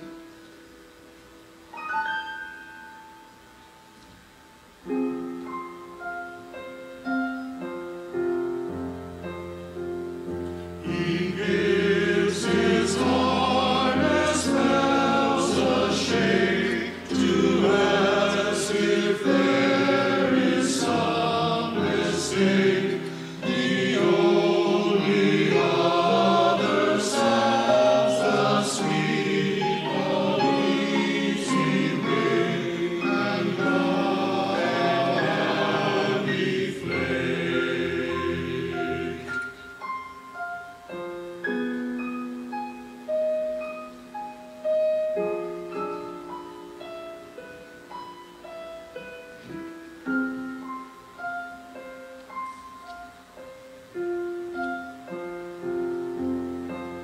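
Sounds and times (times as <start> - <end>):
piano accompaniment: 0.0 - 57.0
choir singing: 10.7 - 39.6.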